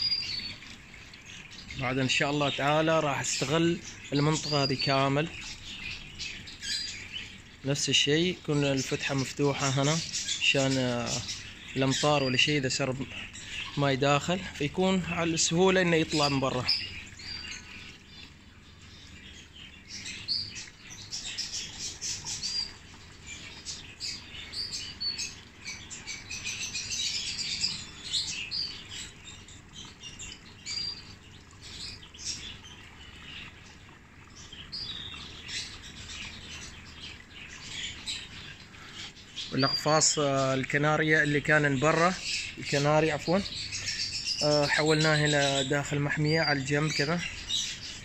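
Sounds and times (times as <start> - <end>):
small birds chirping: 0.0 - 48.0.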